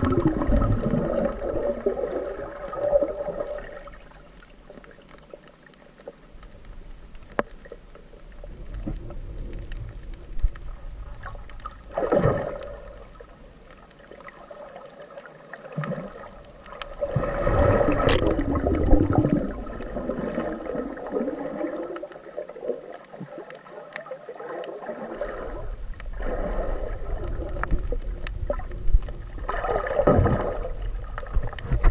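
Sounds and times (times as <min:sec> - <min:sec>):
underwater gurgling and sloshing: 0:00.0 - 0:31.9
small clicks: 0:04.2 - 0:11.9, 0:12.6 - 0:17.0.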